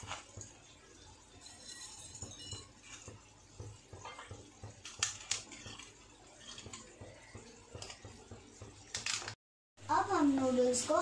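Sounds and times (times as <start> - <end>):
spatula knocking against pan: 2.2 - 5.9, 6.5 - 8.8.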